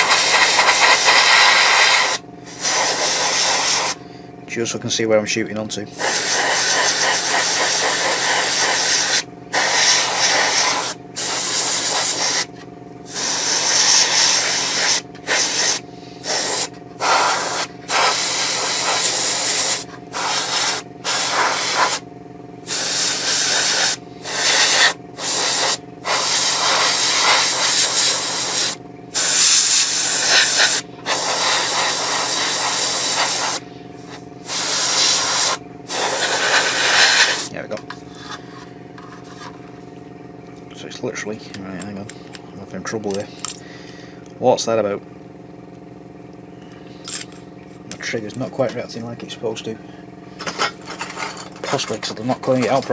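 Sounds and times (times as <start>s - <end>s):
airbrush hissing in bursts: 0.0s - 4.0s, 6.0s - 12.5s, 13.1s - 22.0s, 22.6s - 37.5s
steady low hum: 0.0s - 52.9s.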